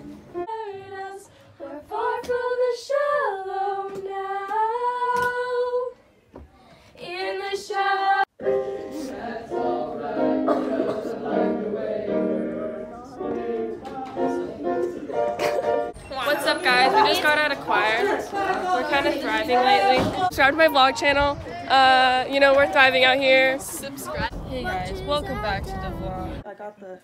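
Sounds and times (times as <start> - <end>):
choir singing: 0.0 - 6.0, 7.0 - 20.3.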